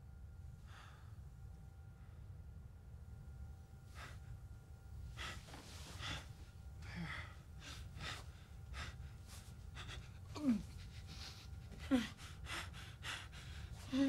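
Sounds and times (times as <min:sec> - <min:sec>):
low steady hum: 0:00.0 - 0:14.0
man breathing hard: 0:00.6 - 0:01.3, 0:03.9 - 0:04.4, 0:05.0 - 0:14.0.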